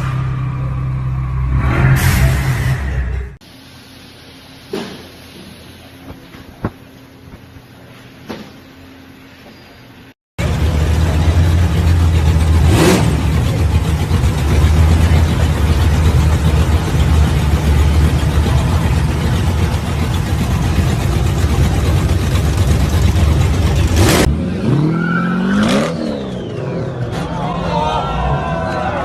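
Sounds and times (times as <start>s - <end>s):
car engine idling choppily: 10.4s - 24.1s.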